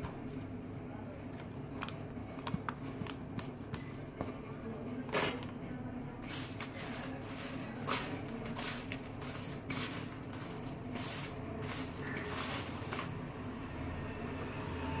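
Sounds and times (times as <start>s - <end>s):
french fries rustling on paper: 6.2s - 13.2s.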